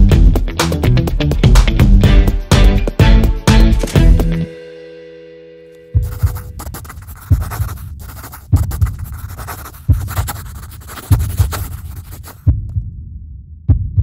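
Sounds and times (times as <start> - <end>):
scratchy crackling noise: 6.0 - 12.5
heartbeat double thumps: 6.0 - 14.0.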